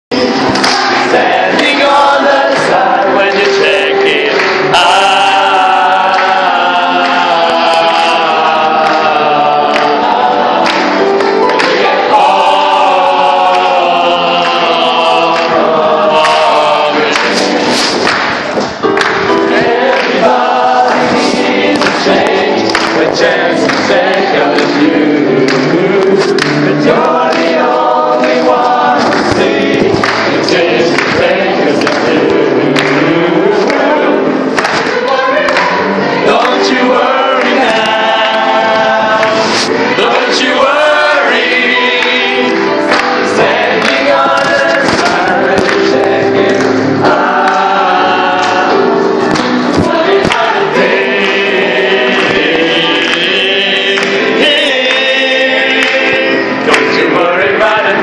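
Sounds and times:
choir singing: 0.1 - 58.0.

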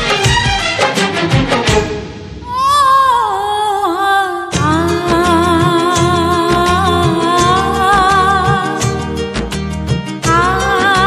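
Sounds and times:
plucked rhythmic accompaniment: 4.5 - 11.0.

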